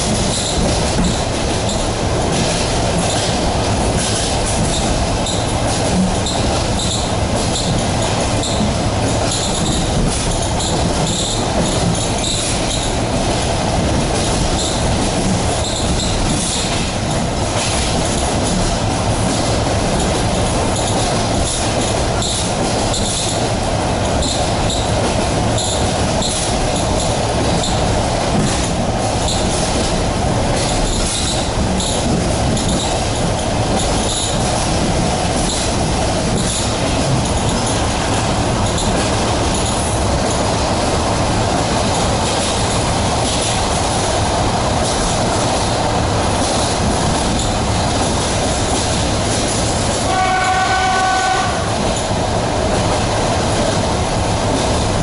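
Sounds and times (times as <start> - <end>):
wheels rumbling on rails: 0.0 - 55.0
wheels squeaking and clicking: 0.2 - 1.8, 6.2 - 13.0, 15.6 - 16.9, 24.2 - 24.9, 30.7 - 33.0.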